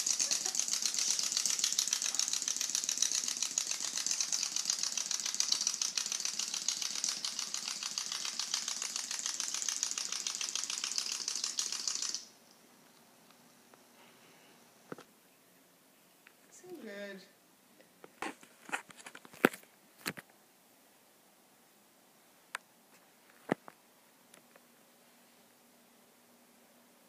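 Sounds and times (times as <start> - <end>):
toy gears clicking: 0.0 - 12.4.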